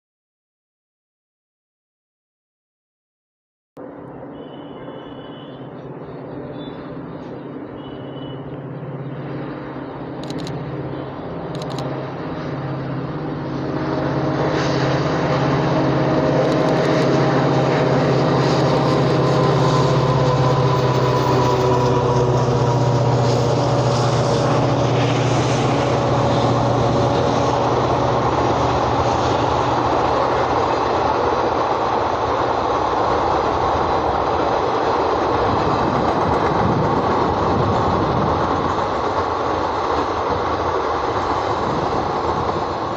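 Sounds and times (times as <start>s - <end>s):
diesel locomotive engine drone: 3.8s - 42.9s
train wheels rattling on rails: 11.4s - 42.9s.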